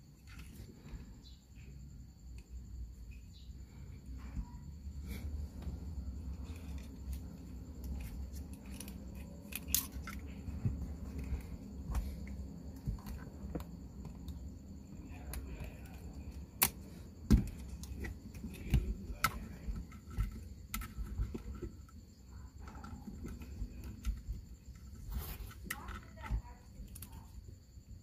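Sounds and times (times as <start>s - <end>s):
sharp plastic knocks: 16.6s - 21.6s.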